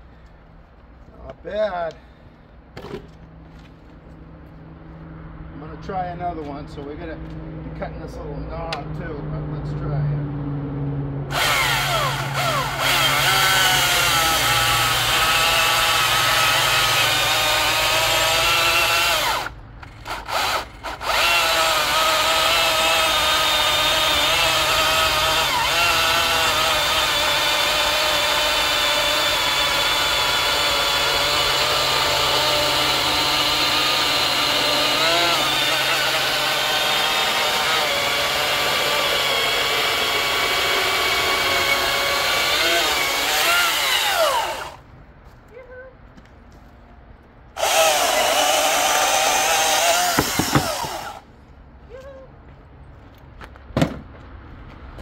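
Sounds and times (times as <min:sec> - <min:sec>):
electric chainsaw cutting log: 0:11.3 - 0:44.8, 0:47.6 - 0:51.3.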